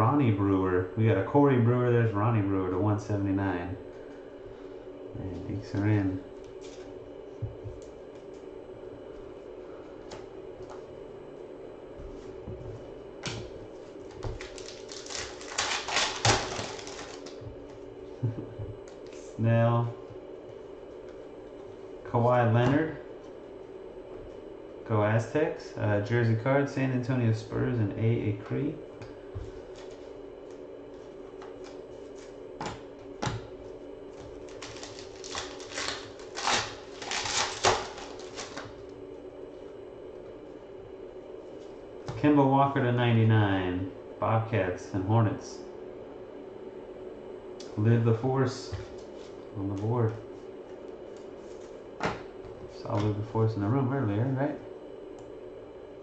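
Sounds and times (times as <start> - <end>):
steady background hum: 0.0 - 56.0
foil pack crackling: 14.0 - 17.5, 34.3 - 38.9.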